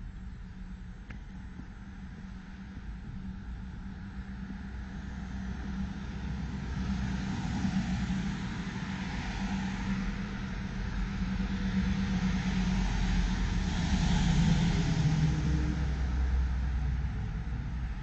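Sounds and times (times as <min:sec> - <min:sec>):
street traffic engine hum: 0:00.0 - 0:18.0
truck passing close: 0:05.0 - 0:18.0.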